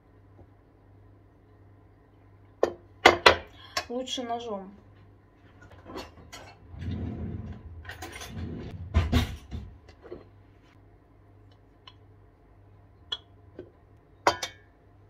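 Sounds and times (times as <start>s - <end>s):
cutlery clinking and knocking: 7.4s - 10.2s, 14.3s - 14.6s.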